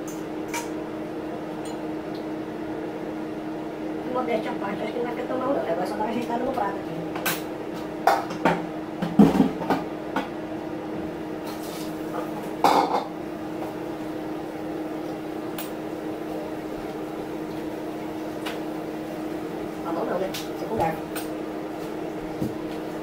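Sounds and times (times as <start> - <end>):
steady hum: 0.0 - 23.0
pots and pans clattering: 8.1 - 9.9, 11.5 - 13.1.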